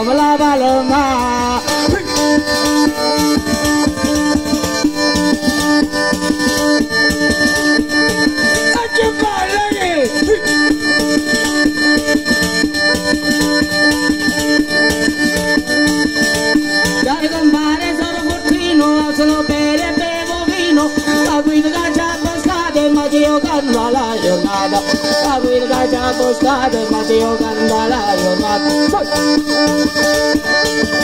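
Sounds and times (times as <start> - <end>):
bagpipe drones and melody: 0.0 - 31.0.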